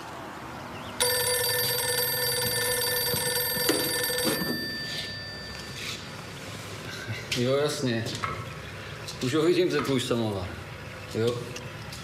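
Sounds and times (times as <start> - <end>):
electric bell ringing: 1.0 - 6.2.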